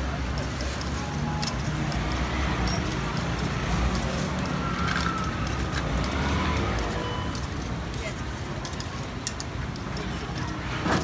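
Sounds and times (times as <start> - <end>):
low traffic rumble: 0.0 - 11.0.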